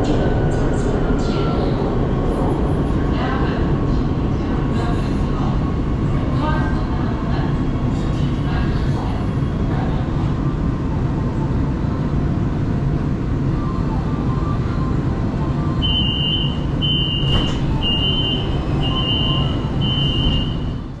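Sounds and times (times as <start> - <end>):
train running rumble: 0.0 - 21.0
high door warning beeps: 15.8 - 20.8.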